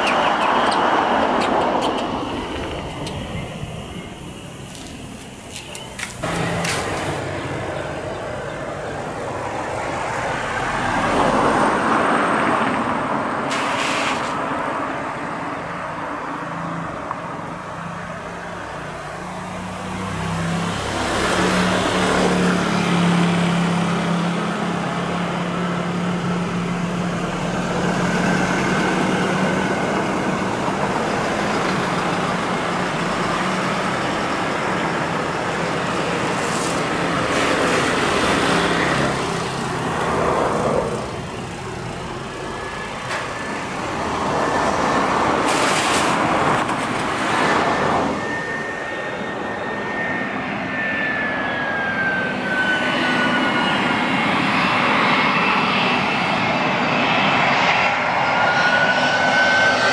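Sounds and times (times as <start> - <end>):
low engine hum: 0.0 - 13.5
vehicles passing: 0.0 - 57.5.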